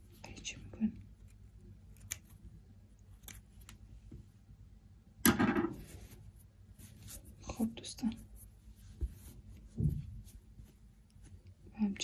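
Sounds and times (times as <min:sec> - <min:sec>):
scissors snipping yarn: 0:01.0 - 0:02.4, 0:03.0 - 0:03.8.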